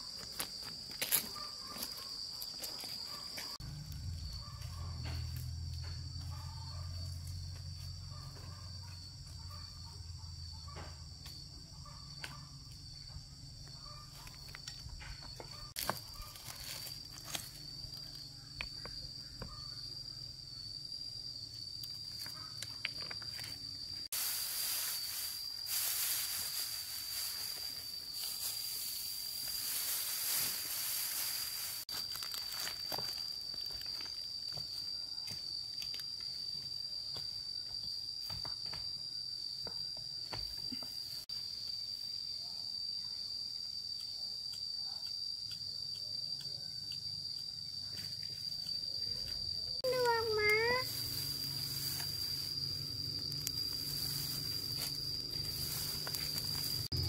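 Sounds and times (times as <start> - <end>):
insect droning: 0.0 - 57.0
loud hiss: 24.1 - 31.9.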